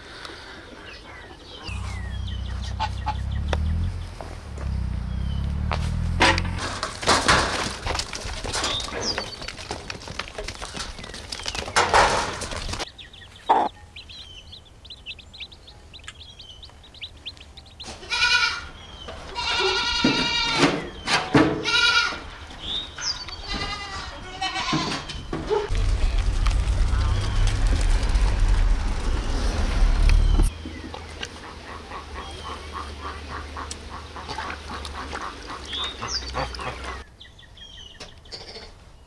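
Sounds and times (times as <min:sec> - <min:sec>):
knocks and clatter: 0:05.6 - 0:12.8
goat kids bleating: 0:18.0 - 0:20.7, 0:21.6 - 0:22.3, 0:23.4 - 0:25.1.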